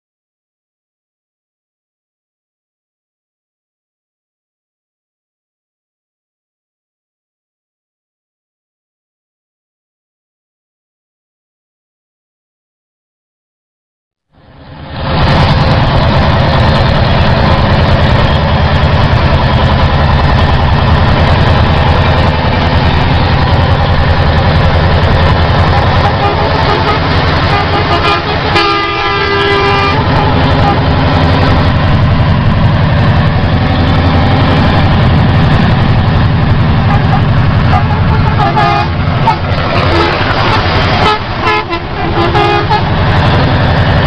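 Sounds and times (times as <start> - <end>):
road noise: 14.3 - 44.0
truck diesel engine drone: 14.3 - 44.0
truck horn: 25.9 - 31.0, 36.8 - 43.0.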